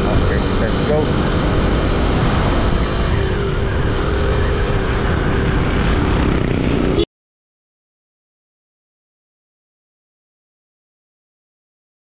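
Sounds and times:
motorcycle engine rumble: 0.0 - 7.0.

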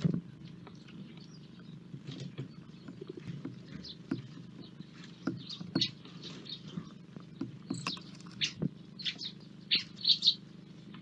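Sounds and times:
birds pecking on wooden feeders: 0.0 - 11.0
small birds chirping: 0.0 - 11.0
steady low hum: 0.0 - 11.0.

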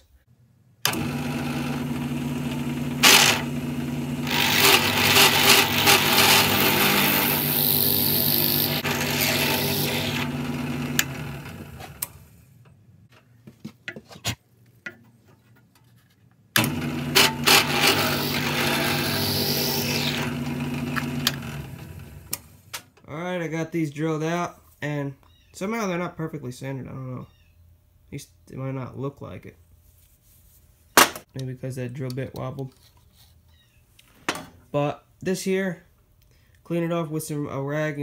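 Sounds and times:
drill press boring wood: 0.8 - 12.2, 16.6 - 22.5
motor hum: 0.8 - 12.4, 16.6 - 22.7.

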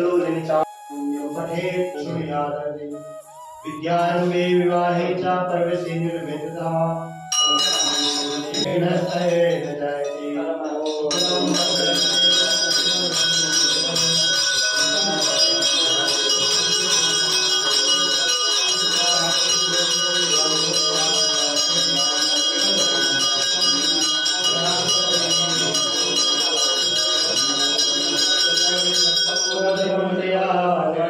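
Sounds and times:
man chanting: 0.0 - 31.0
temple bell ringing: 7.3 - 30.3.

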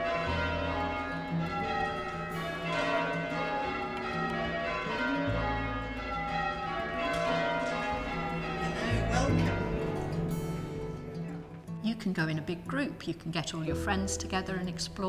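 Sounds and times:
church bells ringing changes: 0.0 - 11.8.

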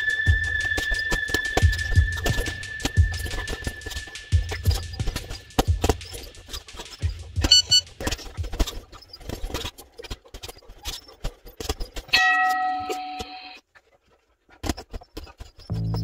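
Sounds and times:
held multi-pitch tone: 7.4 - 7.8.

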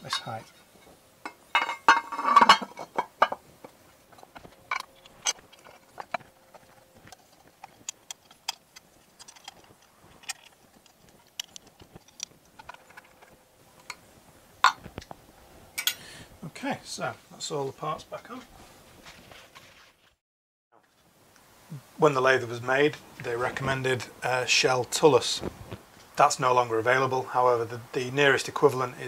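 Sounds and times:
metal clinks and clatter: 4.1 - 14.0
rattling metal: 4.1 - 14.0.

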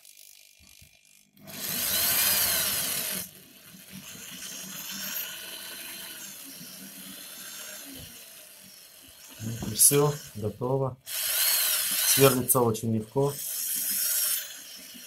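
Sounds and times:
electric drill boring metal: 0.0 - 15.0.

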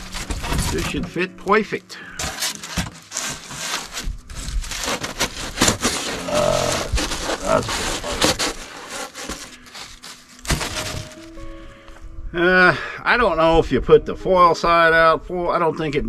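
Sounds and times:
foam squeaking against wood: 0.0 - 11.4
foam board scraping and crackling: 0.0 - 11.5.

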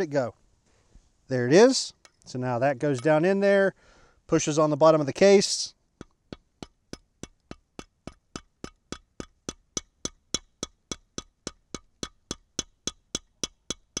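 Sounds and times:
hammer tapping metal rod: 6.0 - 14.0.

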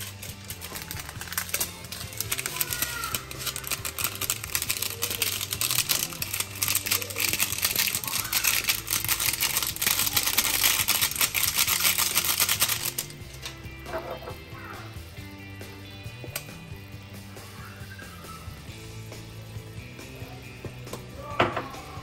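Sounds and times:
plastic sachet crinkling: 0.0 - 14.2.

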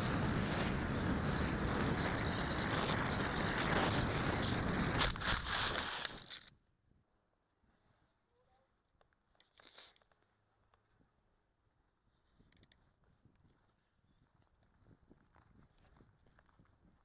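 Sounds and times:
faint high whine: 0.0 - 5.0
wind rushing: 0.0 - 6.2.

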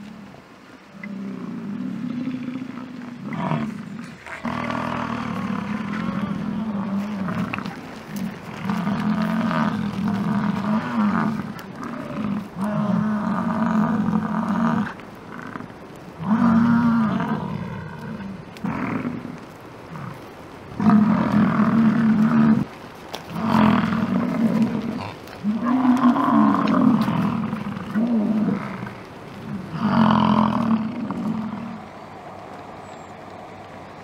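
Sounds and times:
bison bellowing: 0.0 - 32.2.

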